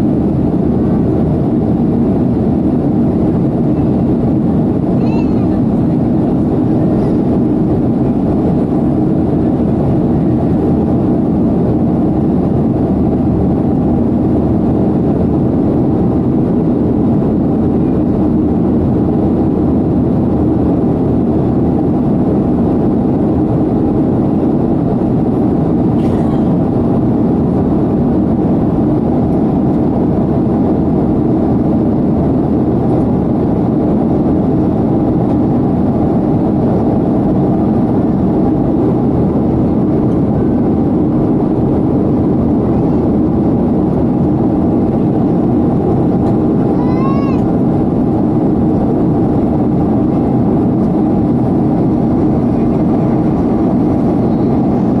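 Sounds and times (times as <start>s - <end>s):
jet engine drone in cabin: 0.0s - 55.0s.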